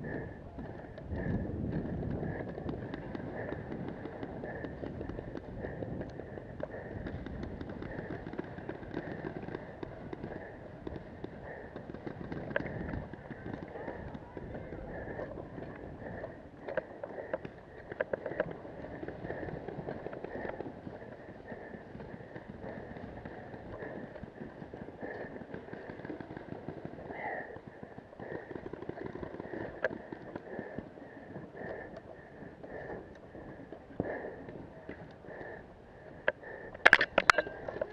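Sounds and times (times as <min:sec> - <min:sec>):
sharp clicks and pops: 0:00.0 - 0:20.7, 0:36.2 - 0:37.9.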